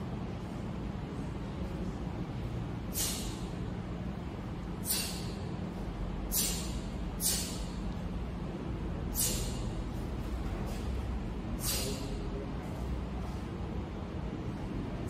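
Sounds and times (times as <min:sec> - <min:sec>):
sharp hissing exhalations: 0:02.9 - 0:03.5, 0:04.8 - 0:05.4, 0:06.3 - 0:07.6, 0:09.2 - 0:09.6, 0:11.6 - 0:12.2.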